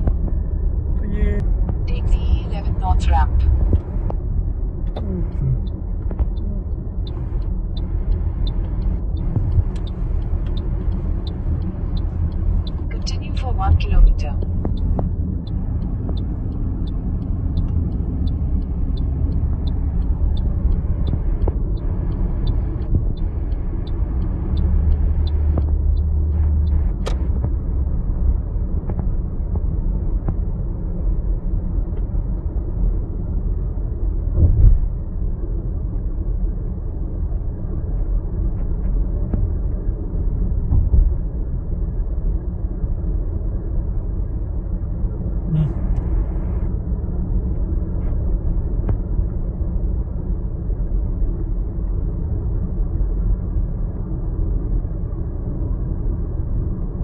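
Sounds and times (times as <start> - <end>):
turn signal ticking: 0.0 - 32.6, 45.4 - 46.8
car road noise rumble: 0.0 - 57.0.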